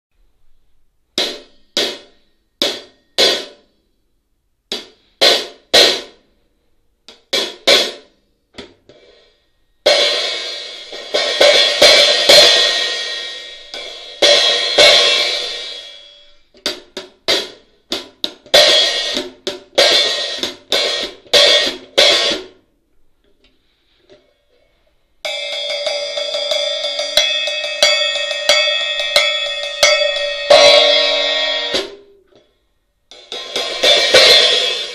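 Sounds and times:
hi-hat hits with drumstick: 1.2 - 3.6, 4.7 - 6.2, 7.1 - 9.1, 9.9 - 22.6, 25.3 - 32.2, 33.1 - 34.9
ringing open hi-hat wash: 25.2 - 32.2.

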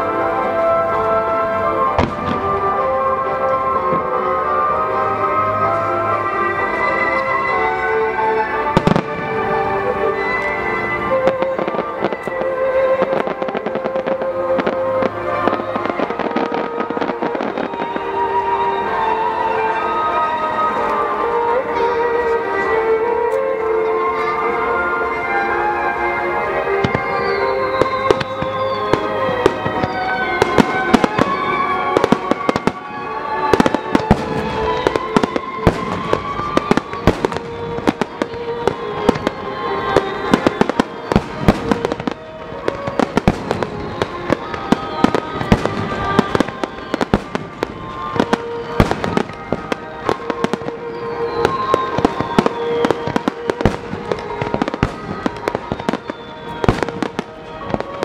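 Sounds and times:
fireworks bursting and crackling: 0.0 - 58.0
music playing: 0.0 - 58.0
falling firework whistles: 26.8 - 58.0.

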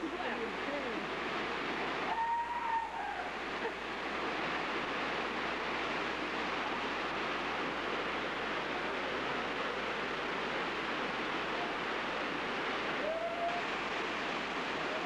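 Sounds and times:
flowing river water: 0.0 - 15.0.

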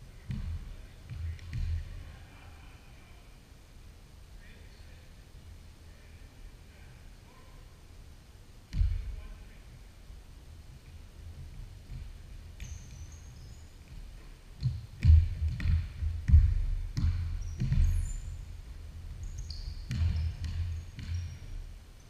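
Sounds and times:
basketball bouncing on hardwood: 0.3 - 1.8, 8.7 - 9.1, 11.8 - 18.4, 19.1 - 21.7
sneaker squeaks on hardwood: 12.6 - 14.0, 17.0 - 18.4, 19.2 - 21.7.

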